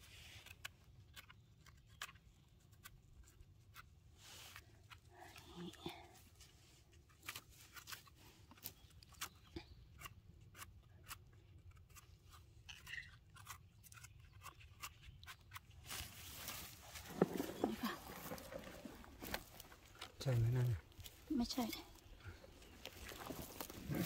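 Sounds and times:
dry twigs crackling and snapping: 0:00.3 - 0:03.9, 0:04.5 - 0:24.0
leaf litter rustling: 0:15.8 - 0:21.7.

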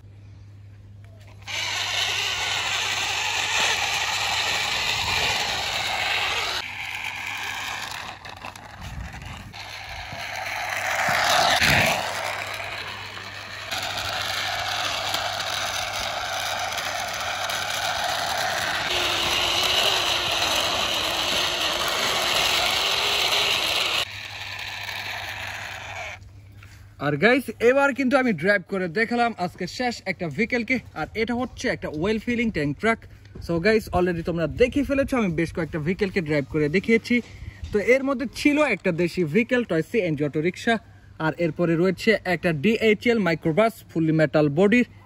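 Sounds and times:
toy wheels rattling on concrete: 0:01.4 - 0:26.2.

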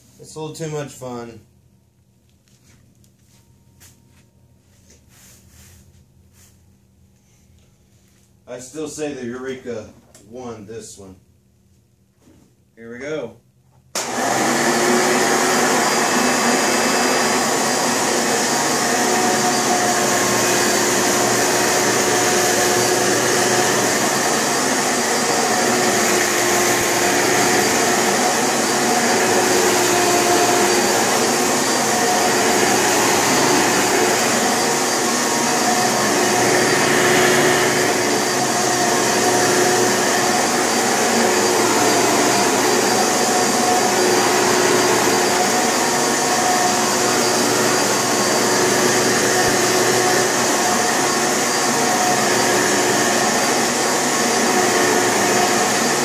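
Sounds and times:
vacuum cleaner running on carpet: 0:14.0 - 0:56.0.

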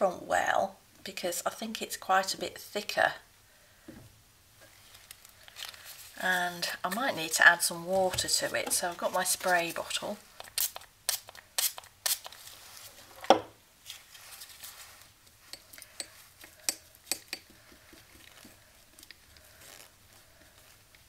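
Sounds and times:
paintbrush scraping ceramic: 0:08.1 - 0:10.0.

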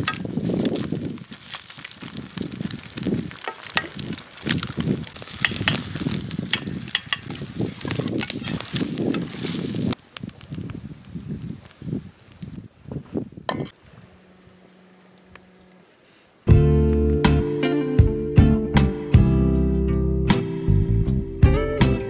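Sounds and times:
campfire crackling: 0:00.0 - 0:20.5
eggs sizzling in a pan: 0:00.2 - 0:12.6
spoon scraping a pan: 0:05.3 - 0:09.6.

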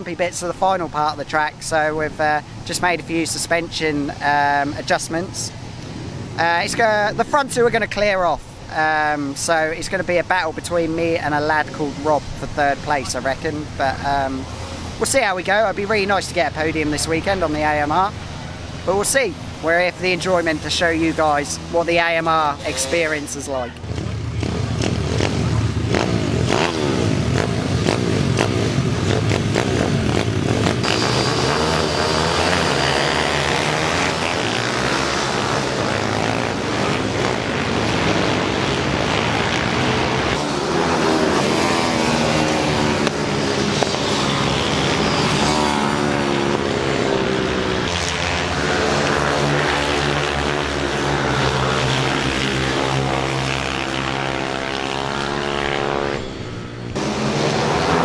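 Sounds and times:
motorbike engines revving past: 0:16.0 - 0:58.0.

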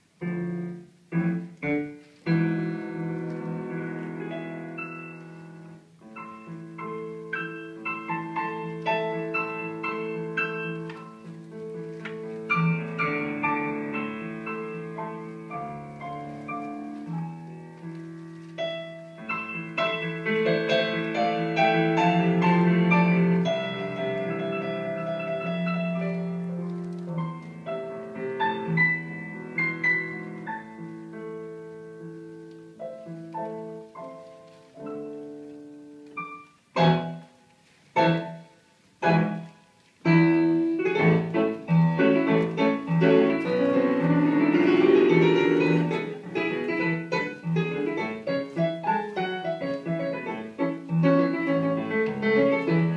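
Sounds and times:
piano music: 0:00.0 - 0:52.9.

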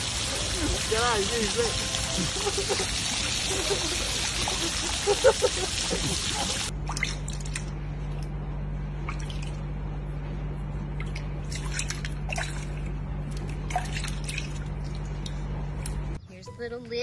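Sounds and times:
water dripping and splashing: 0:00.0 - 0:08.2, 0:11.0 - 0:16.2
steady low hum: 0:00.0 - 0:16.3.

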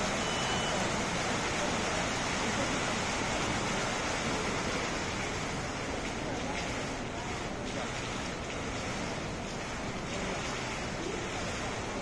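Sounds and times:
water falling into basin: 0:00.0 - 0:12.0.

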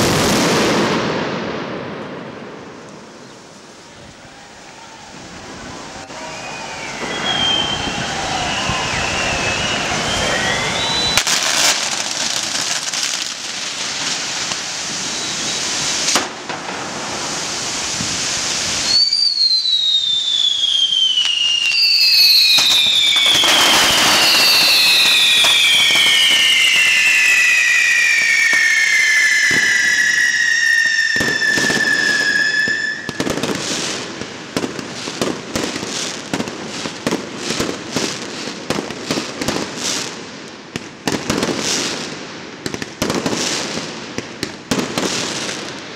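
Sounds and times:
fireworks crackling: 0:00.0 - 0:45.9
pyrotechnic whistles shrieking: 0:06.0 - 0:11.5, 0:15.0 - 0:15.8, 0:18.8 - 0:33.3.

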